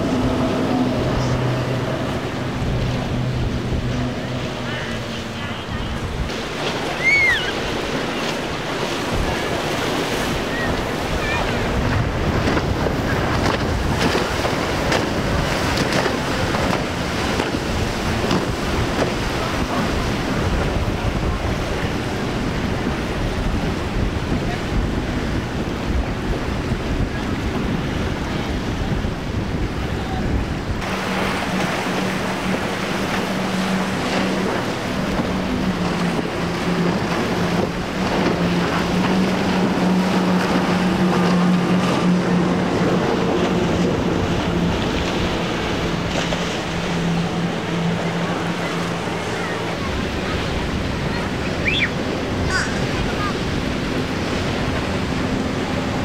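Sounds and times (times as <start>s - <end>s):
outboard engines droning: 0.0s - 56.0s
waves rushing: 0.0s - 56.0s
wind buffeting microphone: 0.0s - 56.0s.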